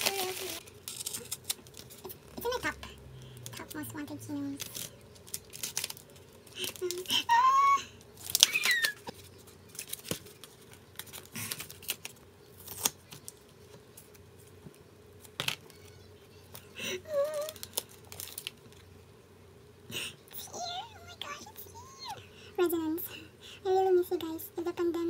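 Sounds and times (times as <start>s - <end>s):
paper and plastic rustling: 0.0s - 2.6s, 4.5s - 7.2s, 8.2s - 15.9s, 16.5s - 18.9s.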